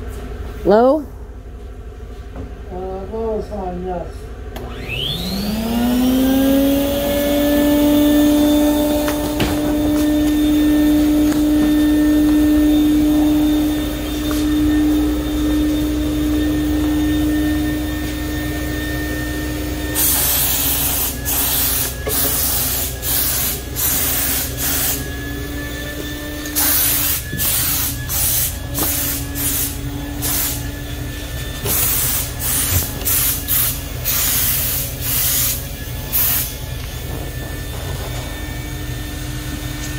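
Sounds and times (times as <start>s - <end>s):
electric motor whine: 4.5s - 39.9s
spray gun hissing: 20.0s - 25.1s, 26.6s - 30.7s, 31.7s - 36.6s.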